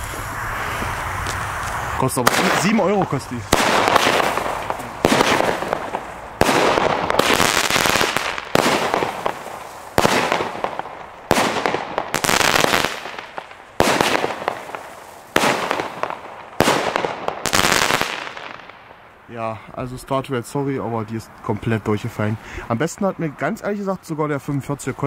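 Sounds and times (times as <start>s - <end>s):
firework crackling tail: 0.0s - 19.3s
firework sharp reports: 0.0s - 19.7s.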